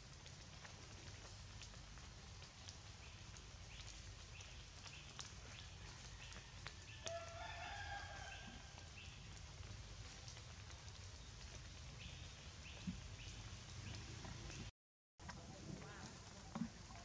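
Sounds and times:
rooster crowing: 0:05.9 - 0:08.8.

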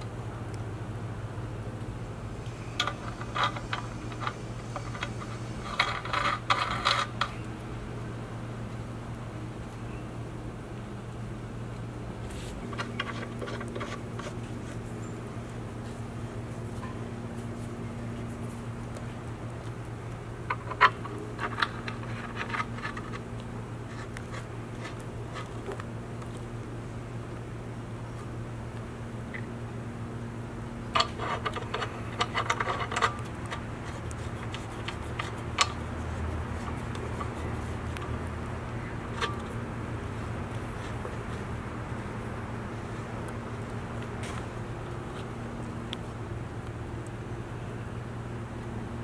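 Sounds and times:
steady low hum: 0:00.0 - 0:49.0
metal pipe fittings clicking: 0:02.8 - 0:07.4, 0:12.7 - 0:14.3, 0:20.5 - 0:23.2, 0:31.0 - 0:38.2, 0:39.1 - 0:39.6.

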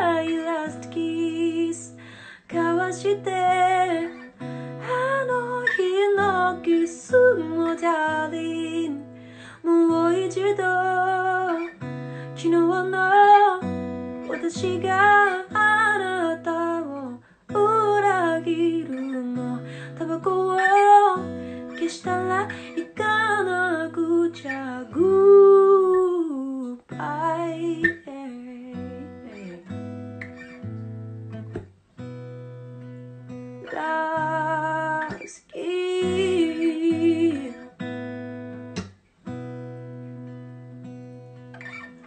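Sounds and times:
woman singing slow song: 0:00.0 - 0:29.9, 0:33.6 - 0:37.8
guitar chords: 0:00.0 - 0:42.0.

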